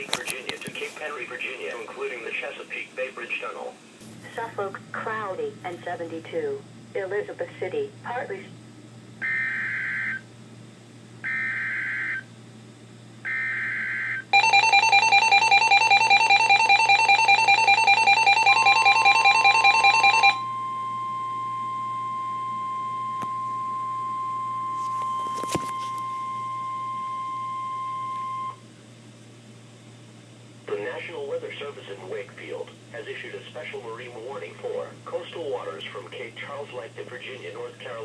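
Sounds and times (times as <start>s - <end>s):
fast-pulsing warble alarm: 9.2s - 10.3s, 11.2s - 12.3s, 13.2s - 28.6s
steady warning alarm tone: 9.2s - 10.3s, 11.2s - 12.3s, 13.2s - 28.6s.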